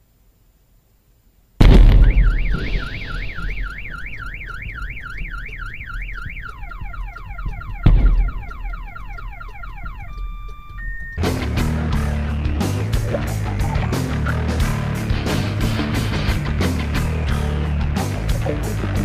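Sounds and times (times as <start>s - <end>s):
loud bang: 1.6s - 5.6s, 7.4s - 8.6s
car alarm cycling tones: 1.9s - 11.3s.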